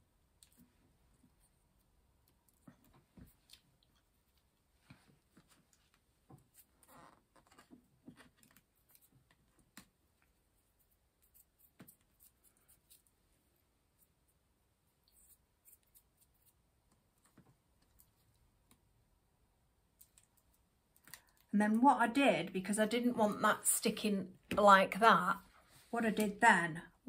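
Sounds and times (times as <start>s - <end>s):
fingers rustling artificial sprigs: 7.5s - 13.2s, 13.8s - 18.9s.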